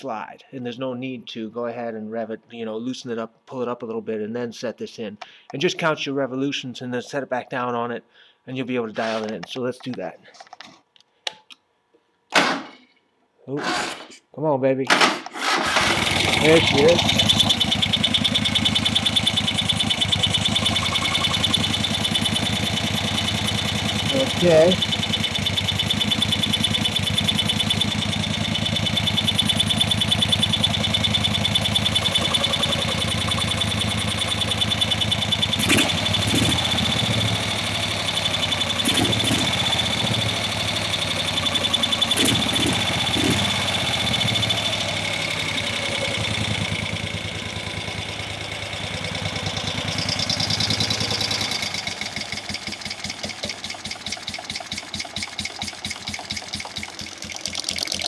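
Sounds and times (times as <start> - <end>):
motorcycle engine idling: 15.8 - 58.0.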